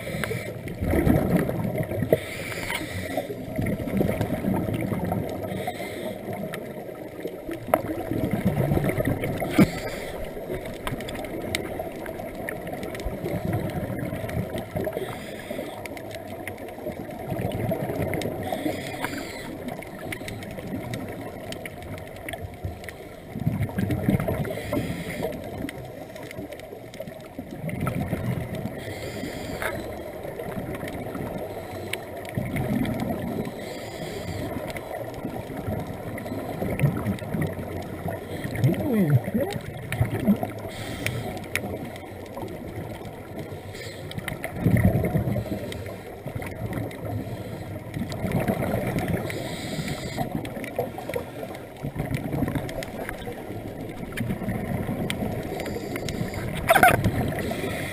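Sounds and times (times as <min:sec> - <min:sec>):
exhaled bubbles rushing: 0:00.0 - 0:02.2, 0:02.9 - 0:05.6, 0:06.2 - 0:15.0, 0:16.3 - 0:18.6, 0:23.3 - 0:25.9, 0:27.2 - 0:28.8, 0:32.2 - 0:33.6, 0:34.5 - 0:40.7, 0:44.2 - 0:45.6, 0:47.8 - 0:57.9
steady underwater hiss: 0:00.0 - 0:57.9.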